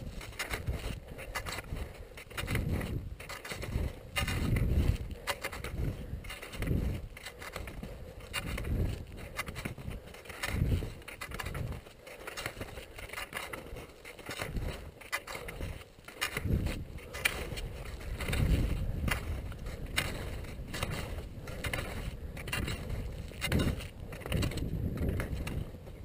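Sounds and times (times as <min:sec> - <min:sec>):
skis scraping over hard snow: 0:00.0 - 0:26.0.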